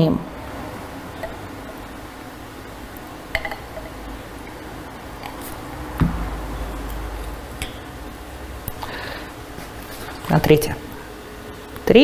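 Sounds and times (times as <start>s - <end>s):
glassware clinking: 3.3s - 4.0s.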